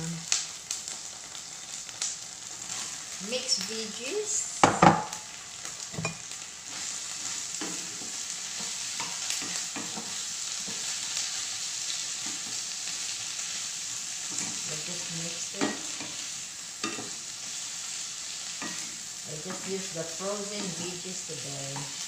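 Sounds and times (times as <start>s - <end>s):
vegetables sizzling in oil: 0.0s - 22.0s
wooden spatula knocking a pan: 4.6s - 5.2s.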